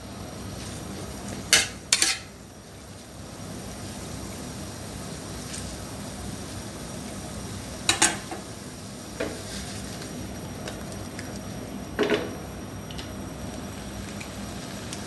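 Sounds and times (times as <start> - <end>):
vegetables sizzling in pan: 0.0 - 11.6, 13.3 - 15.0
metal spatula and pan clatter: 1.5 - 2.3.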